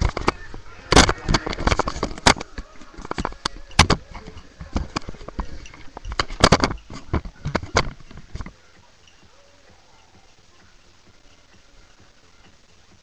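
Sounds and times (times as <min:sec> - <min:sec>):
handling noise on microphone: 0:00.0 - 0:09.3.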